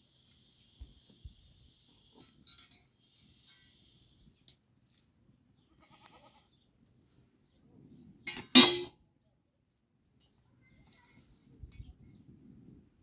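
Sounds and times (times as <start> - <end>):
farm animal bleating: 5.6 - 6.6.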